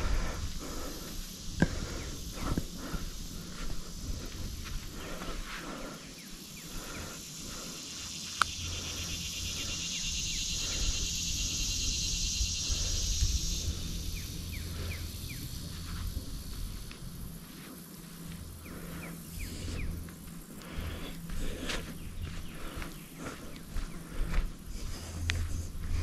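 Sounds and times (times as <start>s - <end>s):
wind rumble on microphone: 0.0s - 5.4s, 9.4s - 17.7s, 20.7s - 26.0s
footsteps on sand: 0.0s - 9.6s, 13.5s - 26.0s
shrill insect buzz: 0.0s - 25.9s.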